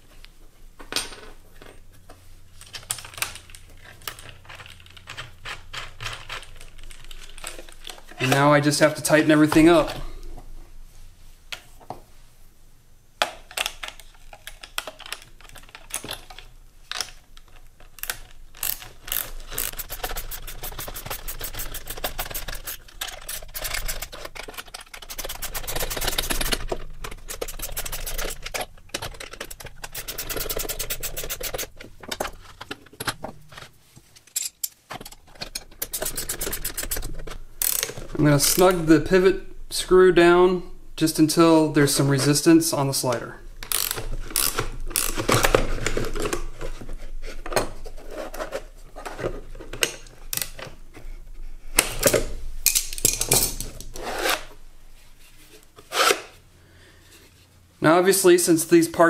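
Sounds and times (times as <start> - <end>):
ratcheting wrench clicking: 18.0 - 31.7, 35.6 - 38.6, 43.6 - 45.4.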